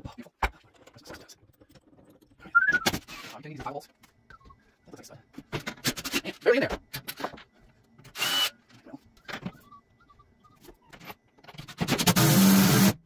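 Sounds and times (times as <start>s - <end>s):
cordless drill driving screws: 8.2s - 8.5s.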